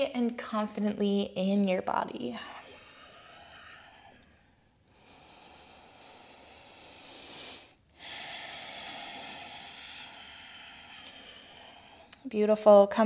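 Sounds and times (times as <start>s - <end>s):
woman breathing deeply: 2.4s - 12.3s.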